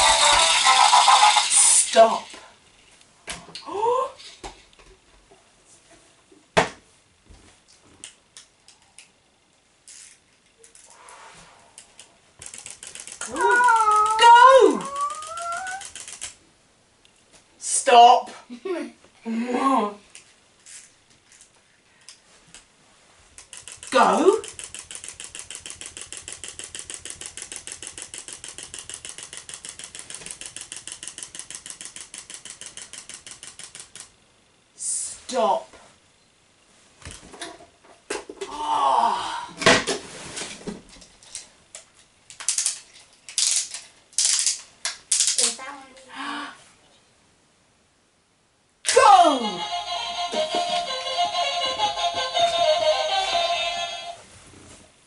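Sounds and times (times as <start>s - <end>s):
wind-up toy ticking: 0.0s - 1.9s, 12.4s - 16.4s, 23.4s - 34.1s
fast run of clicking: 12.0s - 16.4s, 23.4s - 34.2s.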